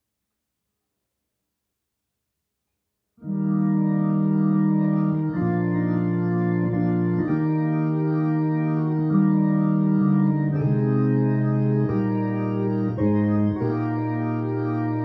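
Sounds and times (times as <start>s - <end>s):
electronic organ playing hymn chords: 3.2s - 15.0s.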